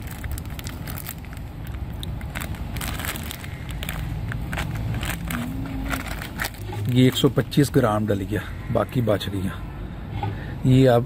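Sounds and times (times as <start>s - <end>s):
plastic packet crinkling: 0.0s - 7.6s
low background rumble: 0.0s - 8.7s.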